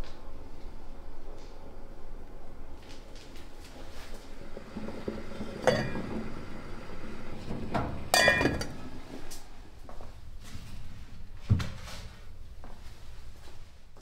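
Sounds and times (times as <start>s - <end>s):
pot lid clinking: 5.6s - 6.0s, 8.1s - 8.8s
kitchenware clinks: 8.1s - 8.8s.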